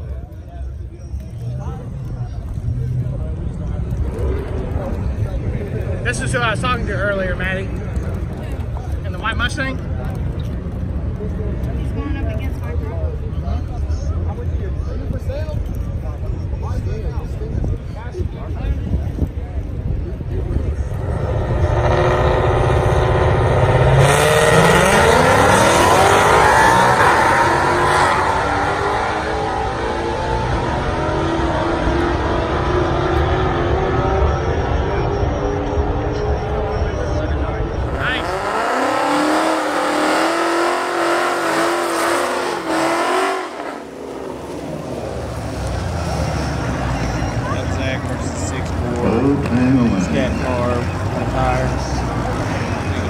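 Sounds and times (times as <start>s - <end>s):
tires spinning: 0.0s - 14.6s, 18.4s - 53.0s
car engines revving and accelerating: 0.0s - 53.0s.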